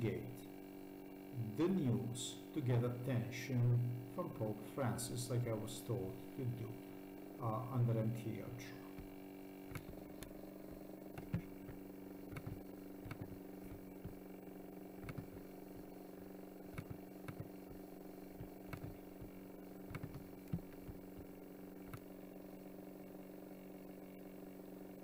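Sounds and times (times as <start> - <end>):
faint electrical hum: 0.0 - 25.0
computer mouse clicks: 8.9 - 14.2, 15.0 - 16.0, 16.6 - 22.2.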